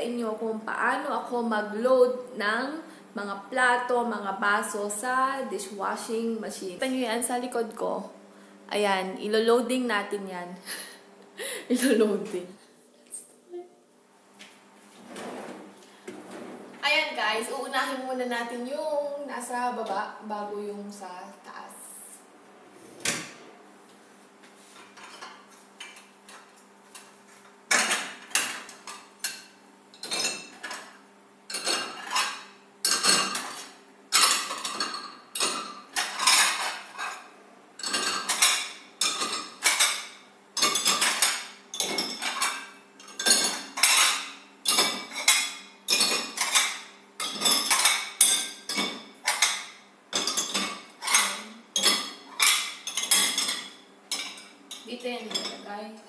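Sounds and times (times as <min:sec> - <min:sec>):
plates clattering in dishwasher rack: 0:27.7 - 0:30.9, 0:31.5 - 0:55.6.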